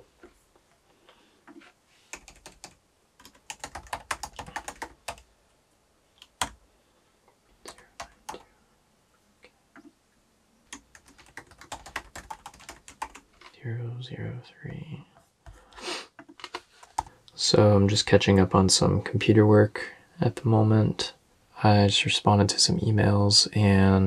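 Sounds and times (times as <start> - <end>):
typing on laptop keyboard: 2.1 - 5.3, 6.2 - 6.6, 10.7 - 13.5, 16.2 - 17.1.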